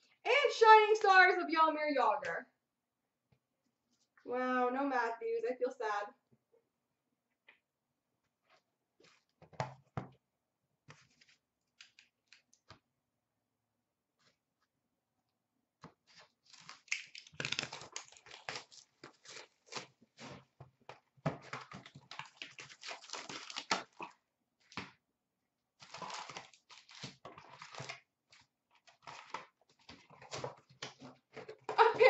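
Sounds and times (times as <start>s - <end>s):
foil wrappers crinkling and tearing: 16.1s - 20.4s, 21.5s - 24.1s, 25.8s - 31.2s.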